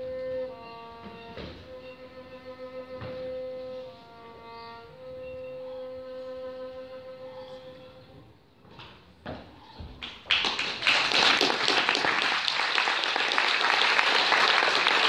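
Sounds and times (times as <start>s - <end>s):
audience applause: 10.0s - 15.0s.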